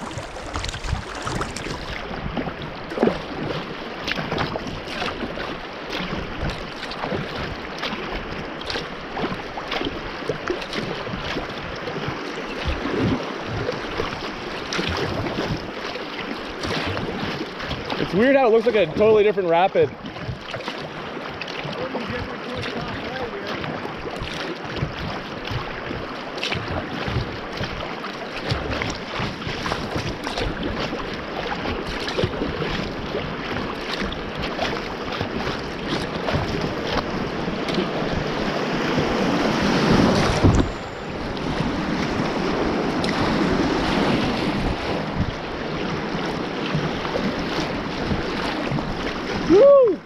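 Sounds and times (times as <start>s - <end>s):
river water rushing: 0.0s - 50.0s
small water splashes: 0.0s - 50.0s
water splashing against kayak hull: 0.0s - 50.0s
wind buffeting microphone: 28.5s - 50.0s.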